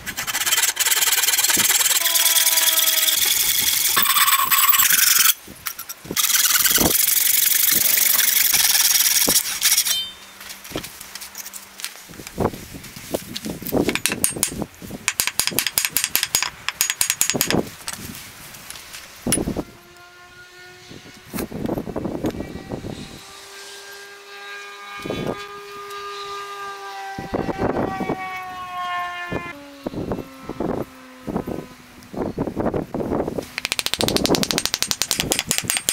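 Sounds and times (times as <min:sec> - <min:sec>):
hand saw cutting wood: 0:00.0 - 0:10.1.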